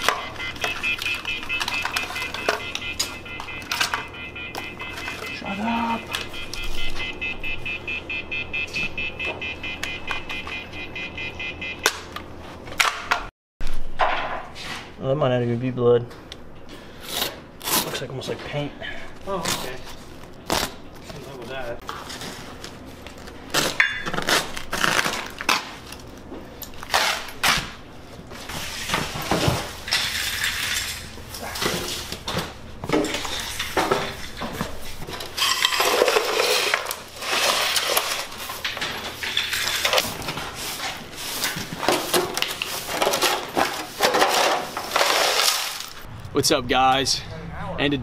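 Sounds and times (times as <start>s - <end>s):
broom sweeping on tile floor: 14.5s - 14.9s, 39.6s - 43.0s
plastic shovel scooping debris: 39.4s - 46.0s.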